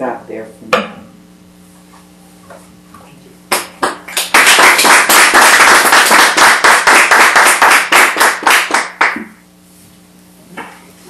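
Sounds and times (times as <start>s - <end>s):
audience applauding: 3.5s - 9.4s.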